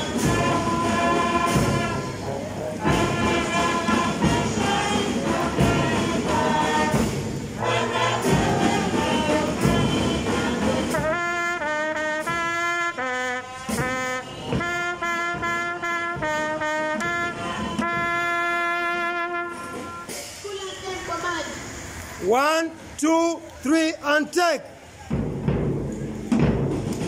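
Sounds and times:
brass melody of held notes: 0.0s - 20.3s
drums: 0.0s - 22.3s, 24.8s - 27.0s.

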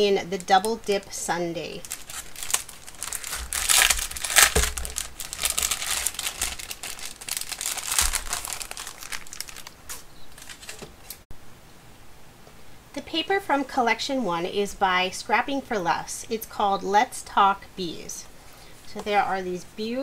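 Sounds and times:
plastic packaging crinkling: 1.7s - 11.2s.

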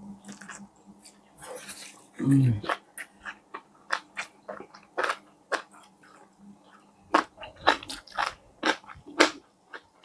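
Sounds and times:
crunching fried chicken: 7.1s - 10.0s.

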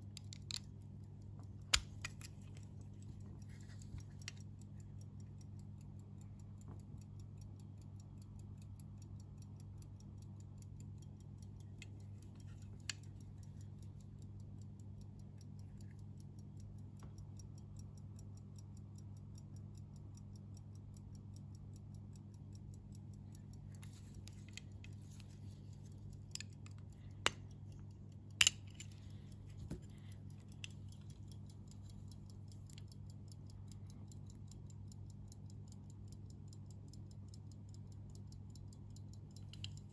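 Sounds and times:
low steady hum: 0.0s - 39.9s
pocket watch ticking: 0.0s - 39.9s
watch case clicks: 28.4s - 30.8s.

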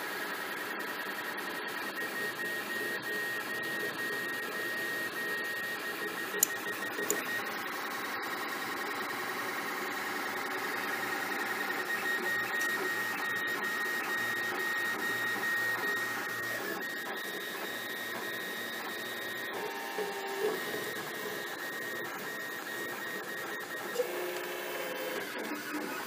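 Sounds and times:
stepper motors whirring: 10.2s - 26.0s.

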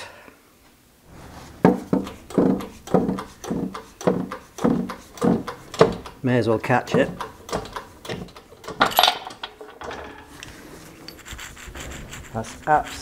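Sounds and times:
hand press clunking and creaking: 1.6s - 6.2s, 6.8s - 11.2s.

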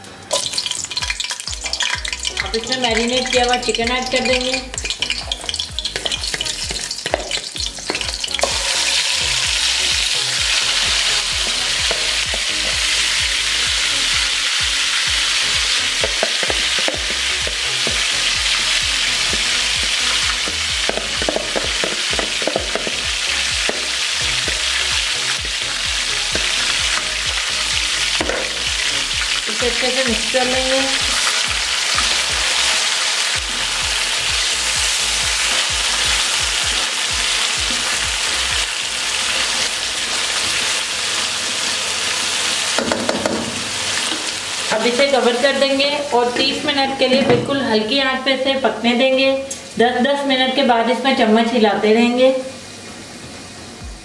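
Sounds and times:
chicken sizzling in hot oil: 0.0s - 54.0s
spatula stirring: 0.3s - 13.0s.

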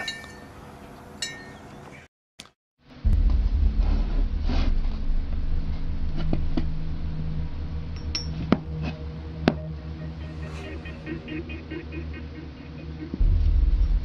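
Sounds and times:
metallic clink: 0.0s - 0.5s, 1.2s - 1.6s, 8.0s - 8.5s.

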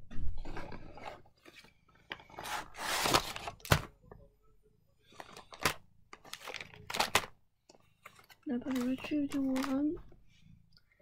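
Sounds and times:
foil pouches crinkling: 5.1s - 7.3s, 8.1s - 10.0s.

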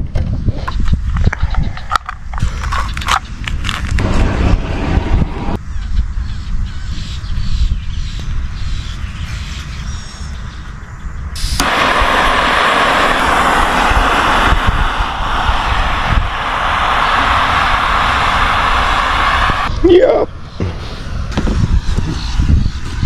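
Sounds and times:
low rumble: 3.6s - 6.5s, 11.6s - 19.8s
gas burner hissing: 11.3s - 23.0s.

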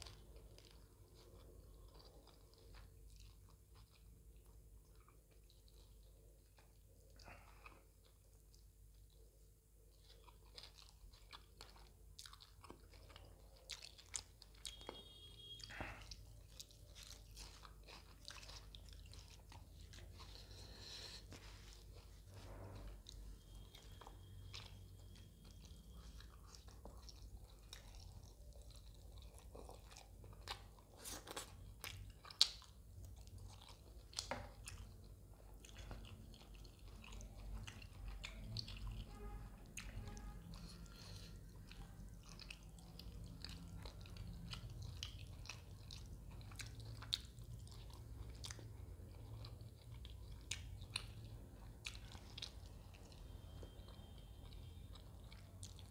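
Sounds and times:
chewing and mouth clicks: 0.0s - 55.9s
food crunching: 0.0s - 55.9s
low steady hum: 0.0s - 55.9s.

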